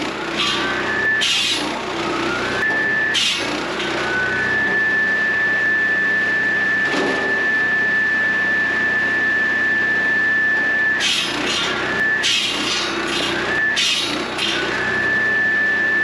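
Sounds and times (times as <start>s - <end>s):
saw blade rasping through log: 0.0s - 1.8s, 3.0s - 4.1s, 11.0s - 14.8s
circular saw blade whining: 0.0s - 16.0s.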